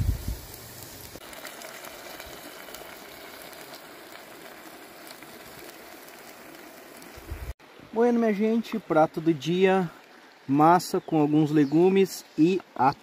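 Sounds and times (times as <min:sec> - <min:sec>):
food sizzling in a pot: 0:00.0 - 0:08.1.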